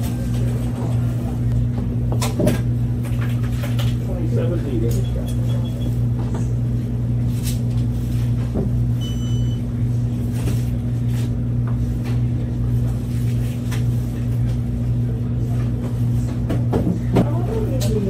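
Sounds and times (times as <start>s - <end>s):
steady low hum: 0.0s - 18.0s
short electronic beep: 9.0s - 9.6s.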